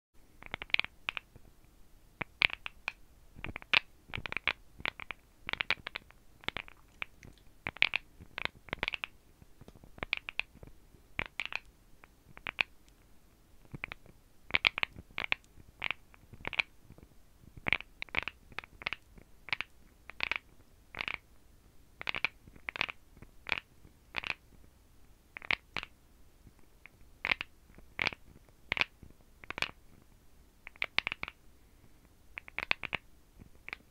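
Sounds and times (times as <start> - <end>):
fingernails tapping on teeth: 0.4 - 1.3, 2.2 - 11.7, 12.3 - 12.7, 32.4 - 33.0.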